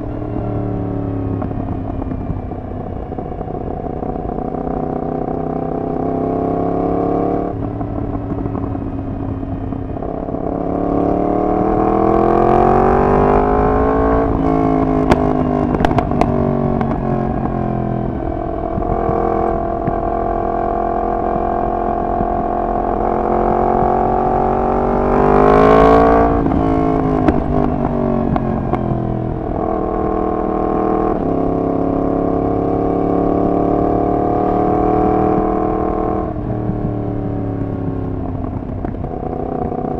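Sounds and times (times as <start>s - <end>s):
motorcycle engine through exhaust: 0.0s - 39.9s.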